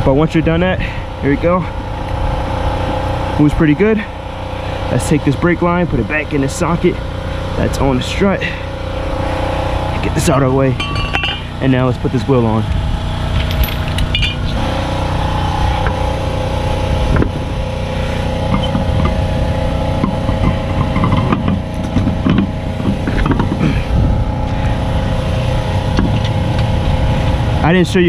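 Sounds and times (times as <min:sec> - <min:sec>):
motor humming: 0:00.4 - 0:28.0
knocks and clunks of wheel fitting: 0:18.4 - 0:19.2, 0:20.0 - 0:23.8, 0:25.9 - 0:26.7.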